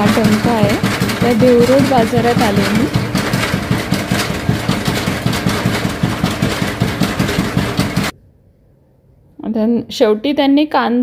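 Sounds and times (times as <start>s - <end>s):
machine running: 0.0s - 8.1s
pestle rods thudding: 0.0s - 8.1s.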